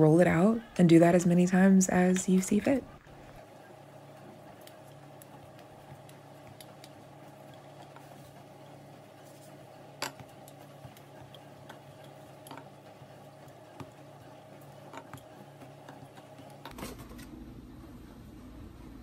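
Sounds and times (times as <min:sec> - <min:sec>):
low steady hum: 0:00.0 - 0:19.0
rolling pin tapping dough: 0:04.6 - 0:08.2, 0:10.0 - 0:16.7.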